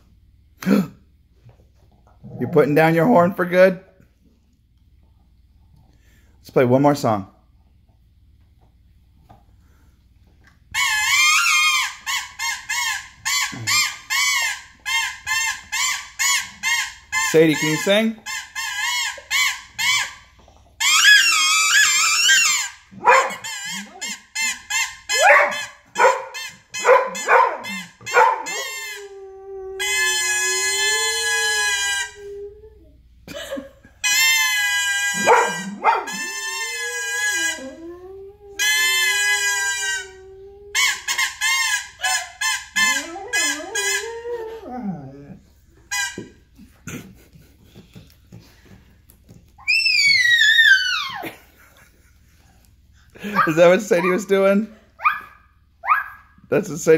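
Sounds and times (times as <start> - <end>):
toy trumpet toots: 10.7 - 32.4, 34.0 - 37.9, 38.6 - 44.3, 45.9 - 46.4, 53.2 - 54.5
dog howling: 25.1 - 32.9, 35.1 - 41.0, 42.8 - 45.4, 49.6 - 51.3.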